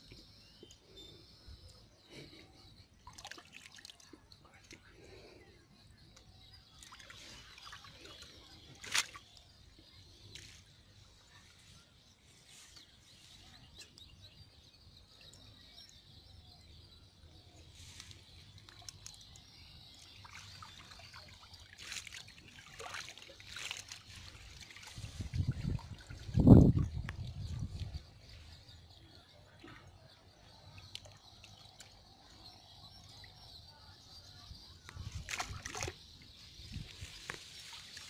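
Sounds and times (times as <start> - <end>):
small water splashes: 3.0 - 4.8, 6.8 - 9.4, 20.2 - 26.9, 35.0 - 36.0
water dribbling and sloshing: 3.0 - 4.9, 6.7 - 10.7, 20.0 - 28.0, 35.0 - 38.0.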